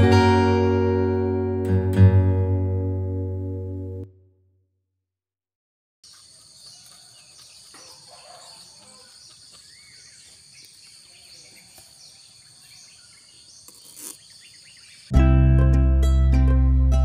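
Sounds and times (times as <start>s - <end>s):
birds chirping: 6.0s - 15.2s.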